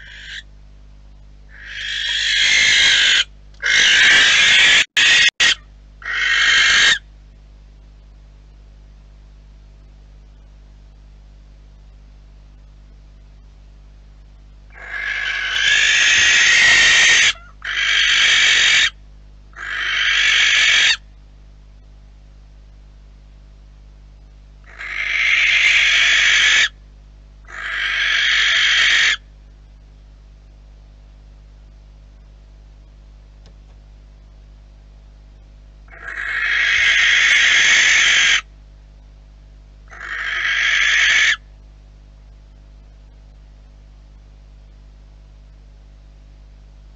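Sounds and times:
barn owl screeching: 0.0 - 0.5, 1.5 - 7.1, 14.7 - 21.0, 24.6 - 26.8, 27.4 - 29.3, 35.9 - 38.5, 39.9 - 41.5.

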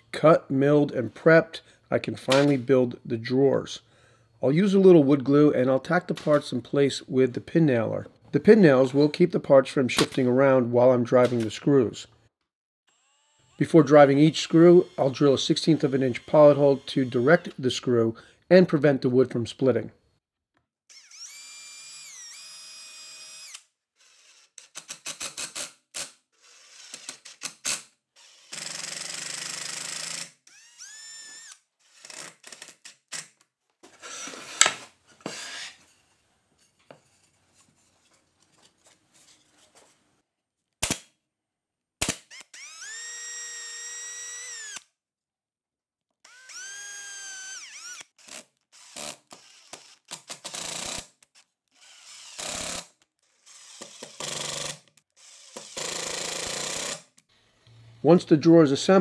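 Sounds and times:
cordless drill whining: 12.9 - 17.6, 20.9 - 24.6, 26.4 - 27.3, 28.2 - 32.6, 42.2 - 44.9, 46.2 - 57.0.

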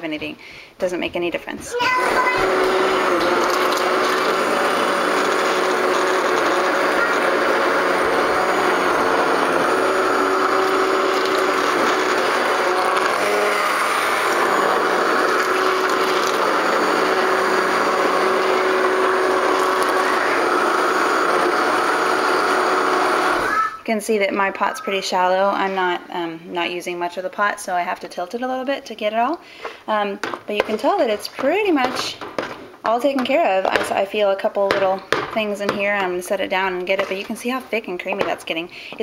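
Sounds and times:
immersion blender whirring: 1.8 - 23.8.

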